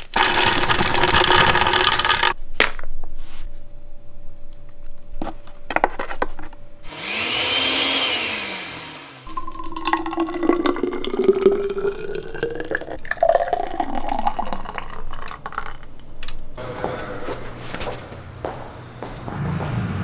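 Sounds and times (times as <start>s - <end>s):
thick smoothie pouring: 0.0s - 2.4s, 9.3s - 15.9s.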